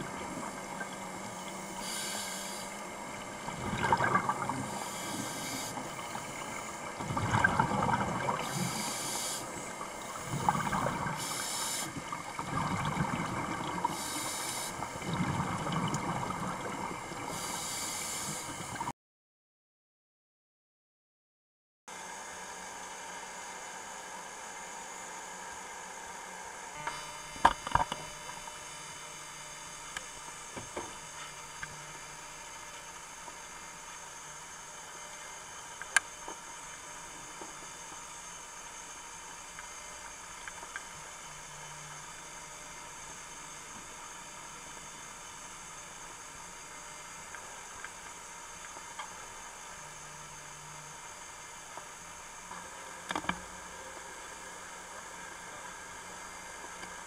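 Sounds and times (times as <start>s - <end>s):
steady hiss: 0.0s - 3.5s, 4.5s - 7.0s, 8.2s - 12.0s, 13.8s - 15.0s, 17.1s - 18.8s
faint electronic whine: 0.0s - 18.9s, 21.9s - 57.0s.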